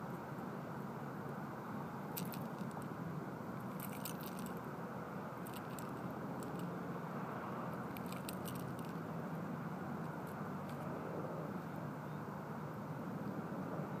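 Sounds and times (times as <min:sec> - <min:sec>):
fishing tackle clicking and rattling: 0:02.2 - 0:02.9, 0:03.7 - 0:04.6, 0:05.4 - 0:06.7, 0:07.7 - 0:09.0, 0:10.3 - 0:10.9.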